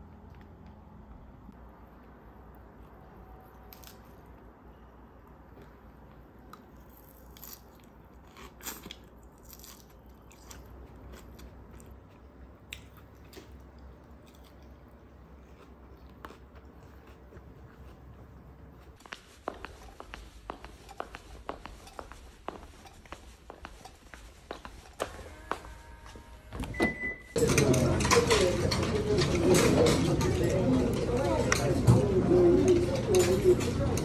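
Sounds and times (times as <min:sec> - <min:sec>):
crunching and chewing salad: 0:02.0 - 0:04.4, 0:05.2 - 0:26.1
footsteps clicking: 0:16.8 - 0:26.5.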